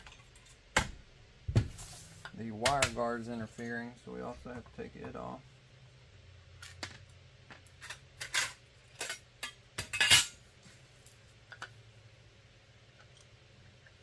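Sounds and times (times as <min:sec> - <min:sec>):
metal parts clinking and scraping: 0:07.7 - 0:10.4.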